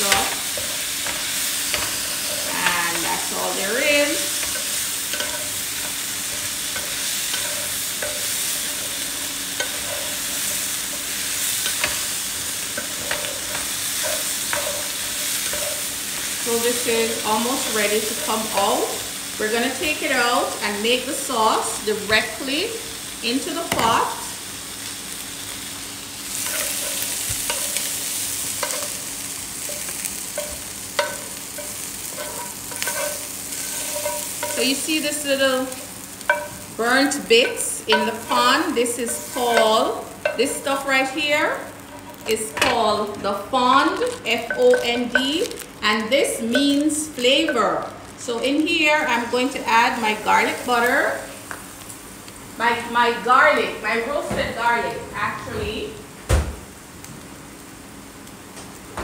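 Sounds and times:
shrimp sizzling in frying pan: 0:00.0 - 0:59.0
wooden spatula scraping pan: 0:30.4 - 0:34.9, 0:36.2 - 0:40.6.

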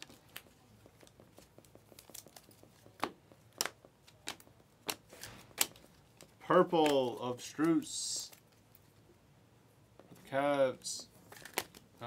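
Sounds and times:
cards sliding and ticking: 0:00.0 - 0:09.0.

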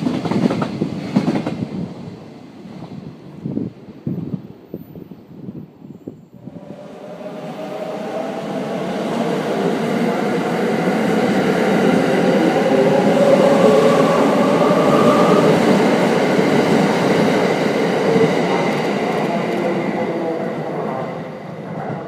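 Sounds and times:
electric train passing: 0:06.3 - 0:22.0.

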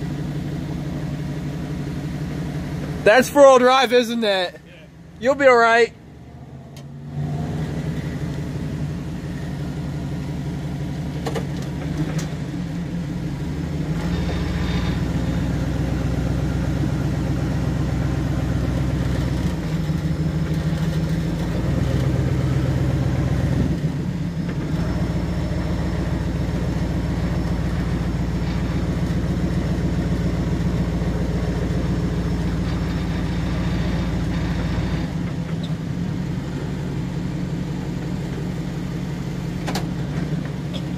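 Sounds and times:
vehicle engine driving in sand: 0:06.2 - 0:40.9.

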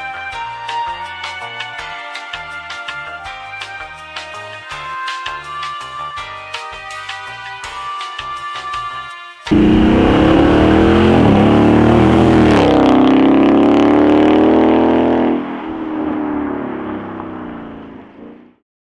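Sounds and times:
car engine accelerating hard: 0:09.5 - 0:18.6.

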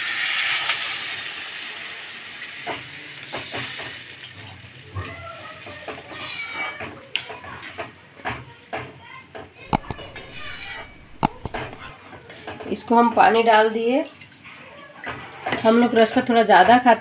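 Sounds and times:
water sizzling in hot pan: 0:00.0 - 0:06.8
metal spatula scraping pan: 0:09.8 - 0:11.2.

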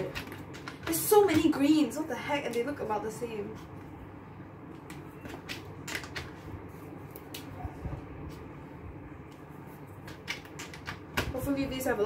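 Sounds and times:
plastic pens clicking and tapping: 0:00.0 - 0:01.5, 0:04.8 - 0:06.4, 0:10.0 - 0:11.4.

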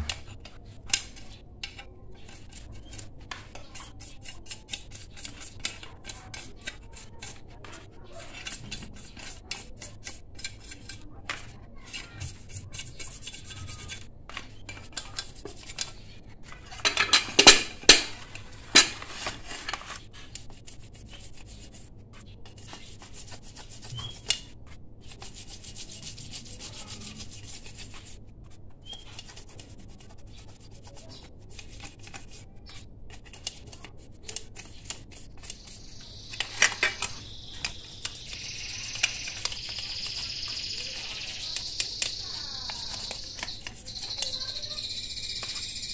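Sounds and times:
brush scrubbing metal: 0:00.0 - 0:45.9
knocks and scrapes of metal casing: 0:10.3 - 0:20.3
cricket chirping: 0:35.6 - 0:45.9.

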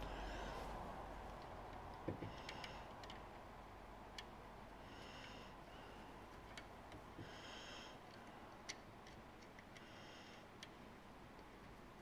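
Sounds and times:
soft breathing through nose: 0:00.0 - 0:01.1, 0:02.2 - 0:03.2, 0:04.8 - 0:06.4, 0:07.1 - 0:08.7, 0:09.8 - 0:10.6
faint clicks of nuts and bolts: 0:01.3 - 0:03.3.

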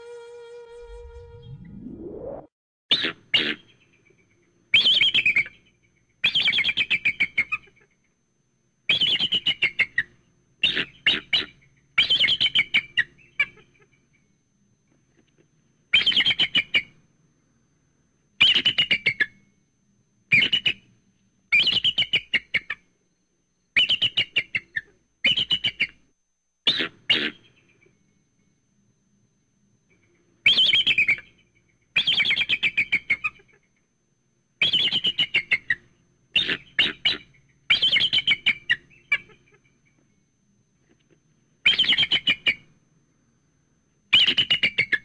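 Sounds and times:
eagle piping chirps: 0:02.9 - 0:08.0, 0:15.9 - 0:17.0, 0:21.5 - 0:22.8, 0:30.4 - 0:33.6, 0:34.6 - 0:40.1, 0:41.6 - 0:42.7, 0:44.1 - 0:45.0.

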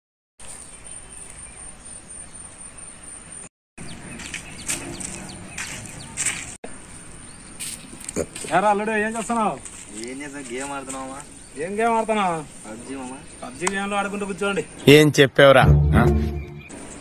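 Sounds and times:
bird chirps: 0:00.4 - 0:08.2, 0:16.0 - 0:17.0
light scuffs: 0:04.2 - 0:06.6, 0:07.6 - 0:08.6, 0:09.2 - 0:11.2.

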